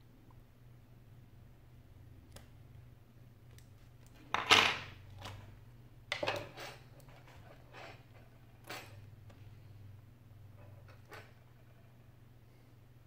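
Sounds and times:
tools clattering on wooden desk: 4.2s - 5.5s, 6.1s - 9.1s.

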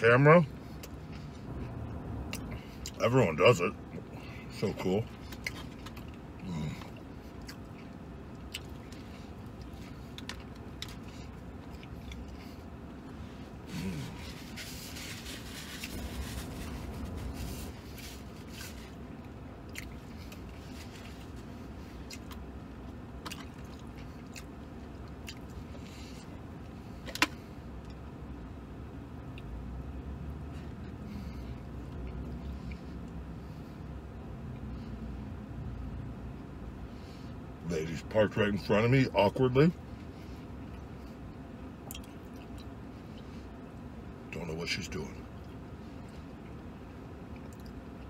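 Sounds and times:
steady low hum: 0.0s - 48.0s
man chewing food: 5.0s - 28.1s, 30.4s - 35.3s, 39.9s - 43.9s, 45.3s - 48.0s.

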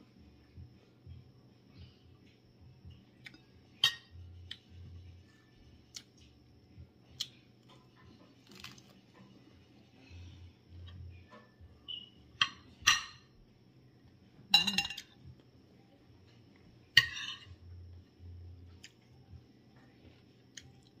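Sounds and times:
cutlery clinking on plate: 14.5s - 15.1s.

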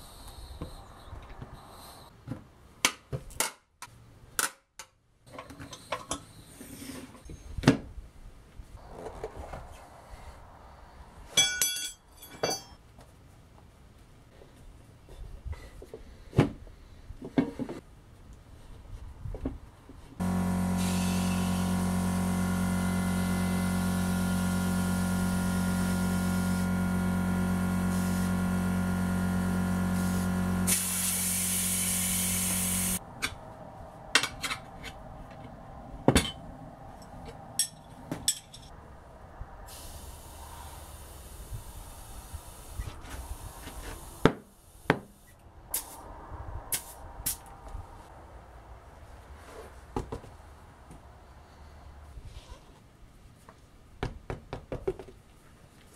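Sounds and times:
air hissing into tyre: 0.0s - 2.1s, 20.2s - 21.8s, 29.9s - 33.0s, 39.6s - 47.5s
air compressor running: 20.2s - 33.0s.

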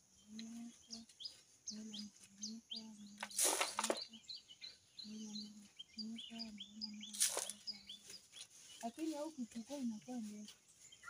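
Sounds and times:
small birds chirping: 0.0s - 11.0s
dry leaves rustling: 3.2s - 4.2s, 7.0s - 11.0s.

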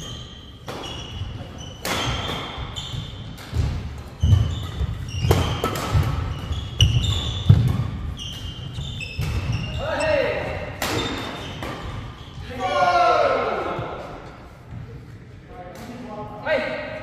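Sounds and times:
rackets striking shuttlecock: 0.0s - 9.7s, 10.7s - 12.1s
shoes squeaking on wooden floor: 0.0s - 10.3s, 11.0s - 12.6s.

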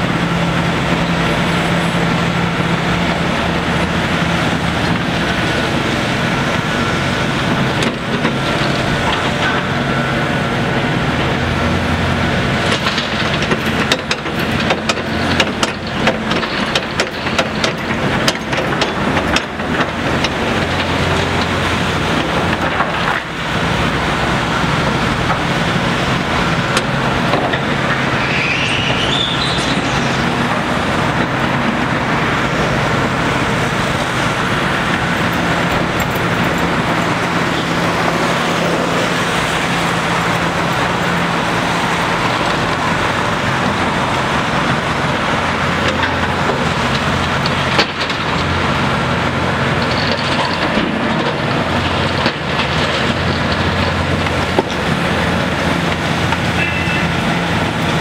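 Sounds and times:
excavator diesel engine under load: 0.0s - 58.0s
hydraulic rising whine: 23.4s - 45.7s.

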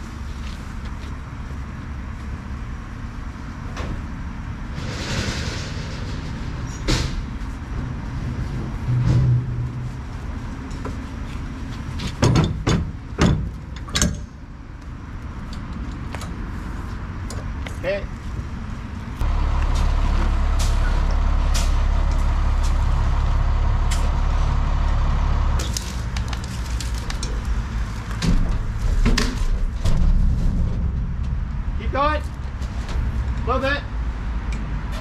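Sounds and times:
vehicle engine idling: 16.3s - 35.0s.

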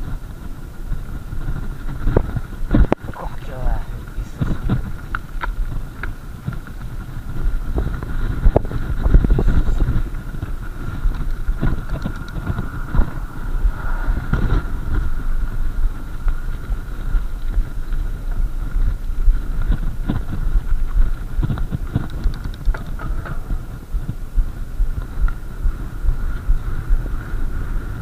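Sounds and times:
bike tyres crunching gravel: 0.0s - 28.0s
wind buffeting microphone: 0.0s - 28.0s
bike rattling and knocking: 4.3s - 13.2s, 15.9s - 27.6s.

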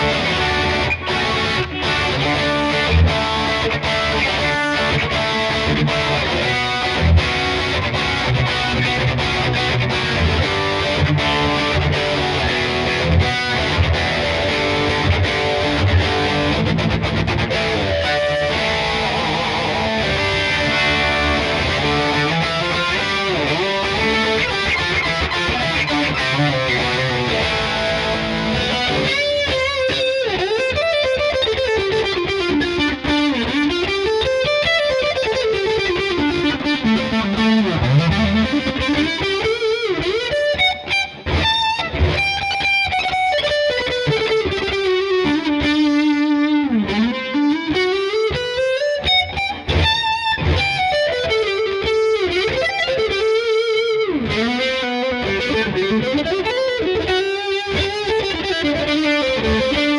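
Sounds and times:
distorted electric guitar lead: 0.0s - 59.9s.

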